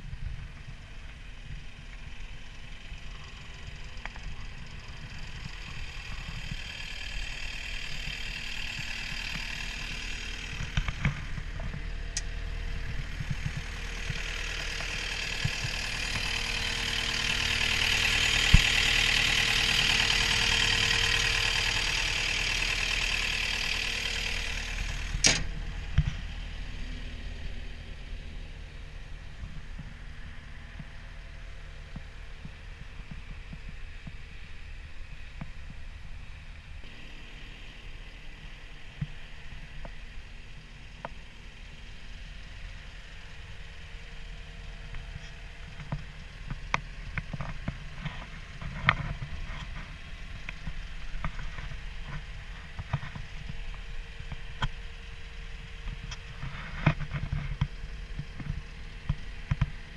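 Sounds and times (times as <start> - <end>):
diesel engine idling: 0.0 - 59.9
sharp clicks and knocks: 10.5 - 16.4, 25.1 - 26.3.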